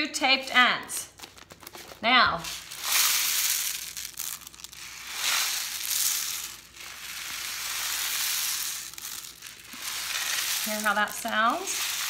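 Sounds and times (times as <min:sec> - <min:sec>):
rice trickling in rain stick: 0:02.5 - 0:12.0.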